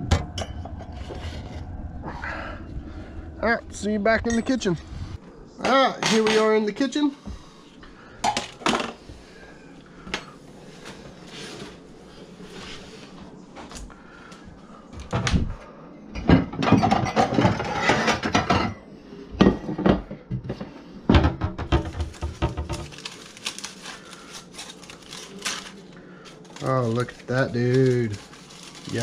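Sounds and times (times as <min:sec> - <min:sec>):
kitchenware knocks and clatter: 0:05.6 - 0:06.6, 0:16.2 - 0:18.8, 0:19.4 - 0:22.9.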